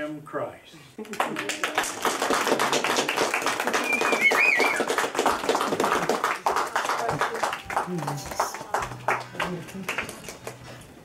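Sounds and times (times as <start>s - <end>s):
people clapping: 1.0s - 11.0s
high whistle: 3.8s - 4.9s.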